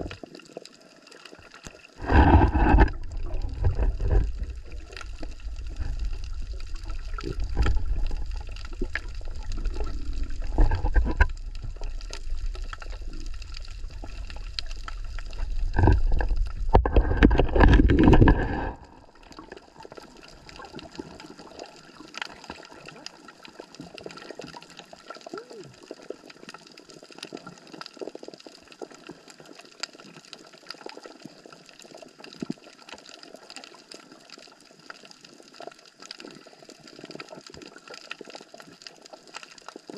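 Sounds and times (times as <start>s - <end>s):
water splashing and sloshing: 0.0s - 39.9s
water trickling: 0.0s - 39.9s.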